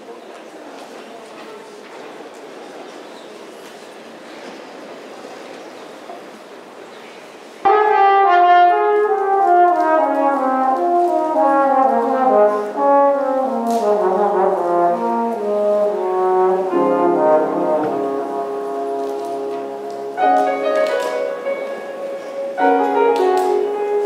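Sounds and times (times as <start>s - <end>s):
brass ensemble music: 7.6s - 24.0s.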